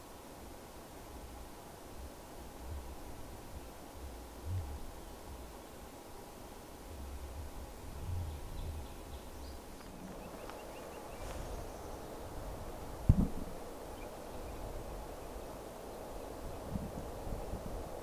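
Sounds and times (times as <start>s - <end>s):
distant bird chirps: 8.2s - 16.7s.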